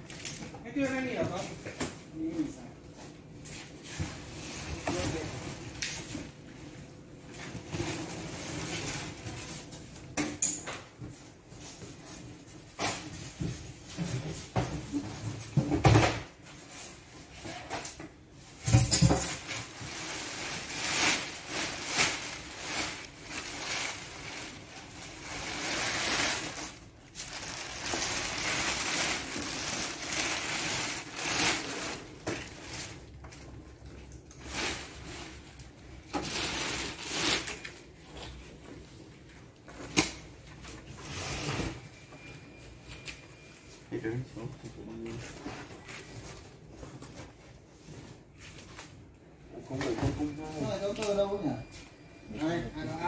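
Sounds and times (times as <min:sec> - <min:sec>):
plastic sheeting crinkling: 0:19.3 - 0:38.2.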